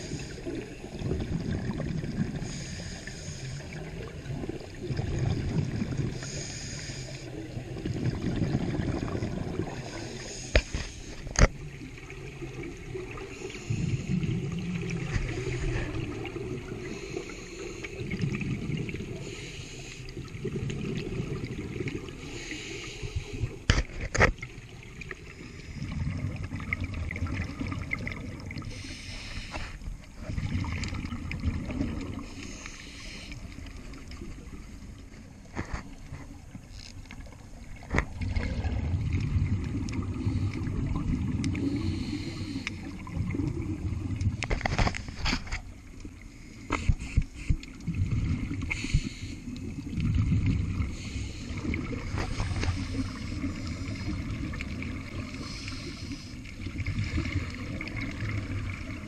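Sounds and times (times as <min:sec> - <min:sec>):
exhaled bubbles rumbling: 0:00.0 - 0:59.0
regulator breathing hiss: 0:02.4 - 0:03.9, 0:06.1 - 0:07.4, 0:09.7 - 0:11.3, 0:13.2 - 0:14.3, 0:16.8 - 0:18.2, 0:19.1 - 0:20.3, 0:22.2 - 0:23.5, 0:28.6 - 0:29.9, 0:32.3 - 0:33.6, 0:41.5 - 0:43.0, 0:48.7 - 0:49.7, 0:50.9 - 0:51.8, 0:55.2 - 0:56.5.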